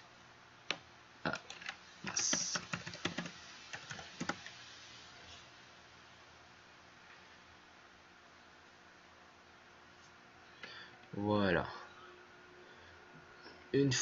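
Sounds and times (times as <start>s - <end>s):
typing on keyboard: 1.3s - 4.5s.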